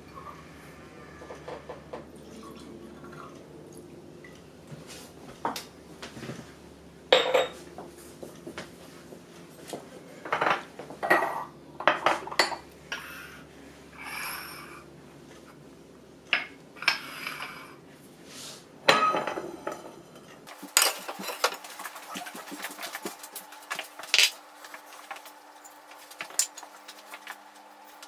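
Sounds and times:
bowls clinking on worktop: 7.1 - 7.6, 18.9 - 24.4.

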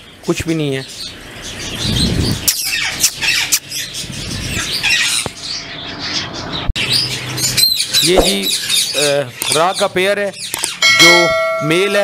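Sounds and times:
parrots squawking and chirping: 0.8 - 11.2
short knock: 8.2 - 8.5.

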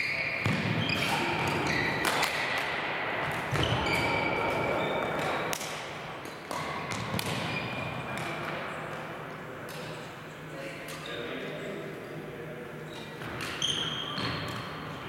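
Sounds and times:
rackets striking shuttlecocks: 0.4 - 9.0.

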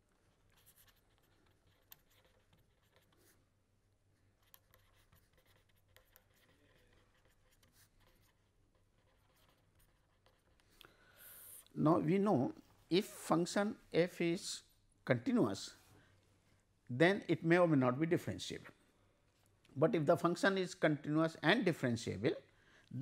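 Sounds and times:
pen scratching on paper: 0.5 - 3.4, 4.4 - 11.7.

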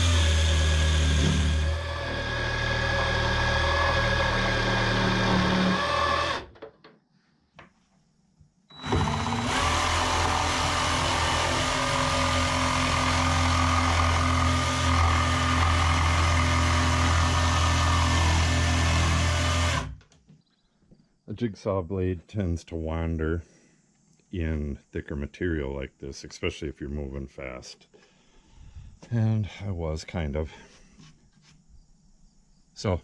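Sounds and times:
jigsaw cutting plywood: 0.0 - 6.5, 8.8 - 20.0.

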